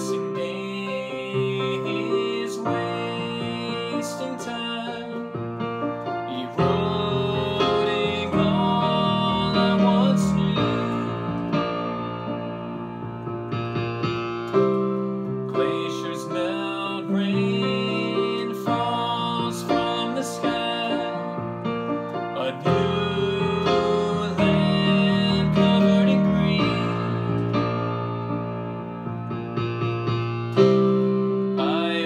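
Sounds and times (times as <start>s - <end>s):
man singing: 0.0s - 12.0s, 15.3s - 27.9s, 31.5s - 32.0s
electronic keyboard piano chords: 0.0s - 32.0s.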